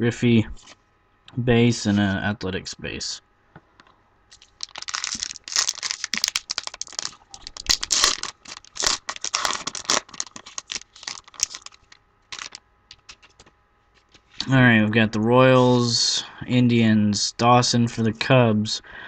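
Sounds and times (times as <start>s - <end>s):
foil wrapper tearing and crinkling: 4.3s - 13.5s.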